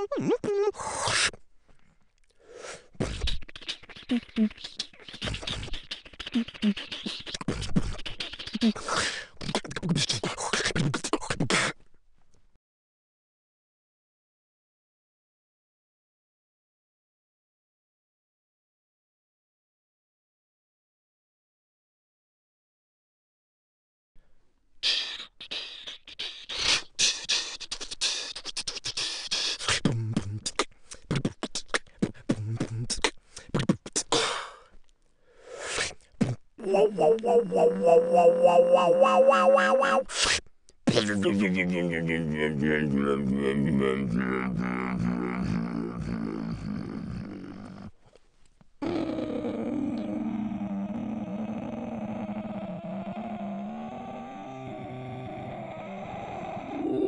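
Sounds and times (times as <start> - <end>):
beatboxing: 0.0 - 1.4, 2.8 - 11.8, 24.8 - 34.6, 35.6 - 47.9.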